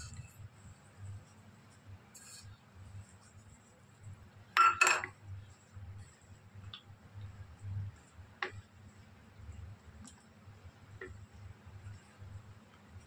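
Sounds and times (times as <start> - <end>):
kitchenware clinking: 4.6 - 5.2.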